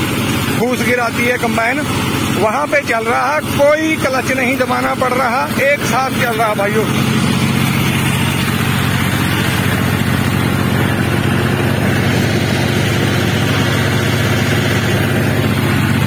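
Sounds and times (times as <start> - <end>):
tractor diesel engine running: 0.0 - 16.0.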